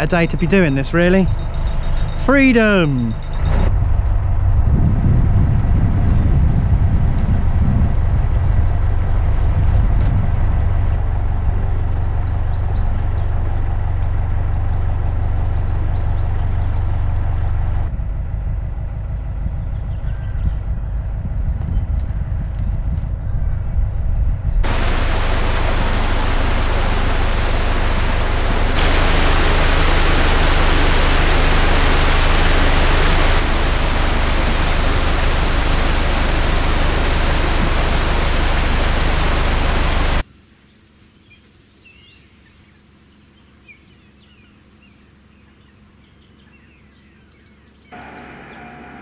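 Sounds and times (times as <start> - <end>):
water rushing: 0.0 - 3.7, 24.6 - 40.2, 48.0 - 49.0
low steady hum: 0.0 - 40.2.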